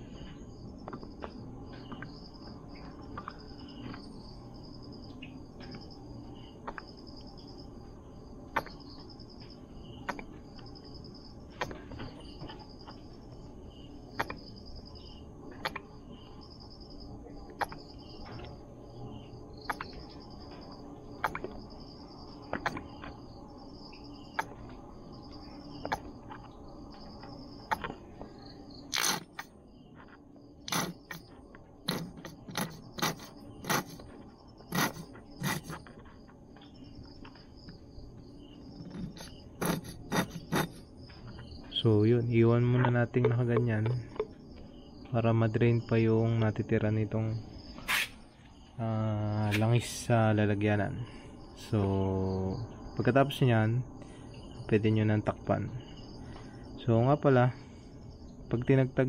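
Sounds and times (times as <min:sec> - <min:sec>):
insects chirping: 0:00.0 - 0:59.0
low background hum: 0:00.0 - 0:59.0.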